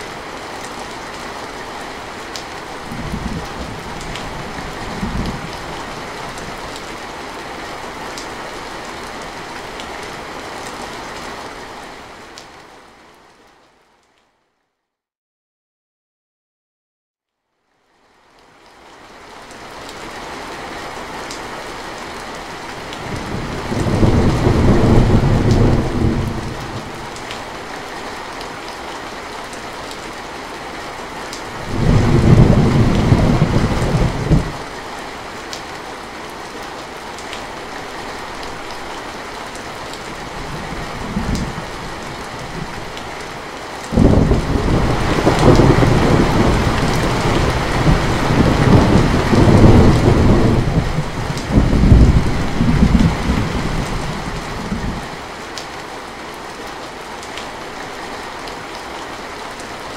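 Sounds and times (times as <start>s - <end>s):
heavy rain falling: 0.0s - 13.6s, 18.0s - 59.9s
thunder rumbling: 23.0s - 27.2s, 31.6s - 34.6s, 40.2s - 43.0s, 43.9s - 55.1s.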